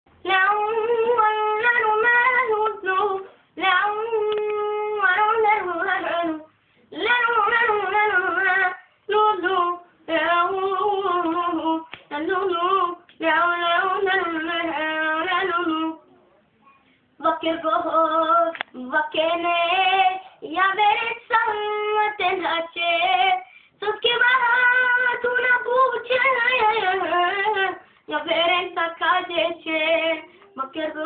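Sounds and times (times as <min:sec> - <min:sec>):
boy singing unaccompanied: 0:17.2 - 0:31.0.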